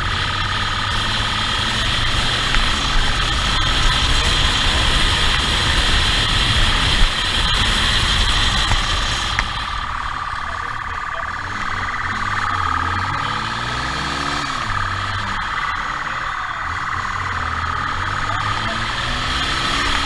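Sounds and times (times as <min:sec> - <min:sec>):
motorcycle engine at speed: 0:00.0 - 0:20.0
steady high whine: 0:00.0 - 0:20.0
wind rush on microphone: 0:01.8 - 0:10.4.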